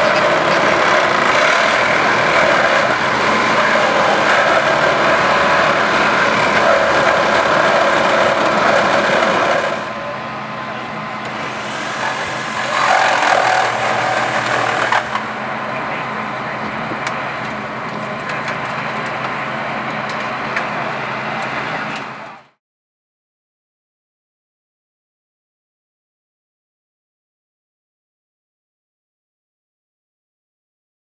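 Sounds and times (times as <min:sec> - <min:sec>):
engine running steadily: 0:00.0 - 0:22.6.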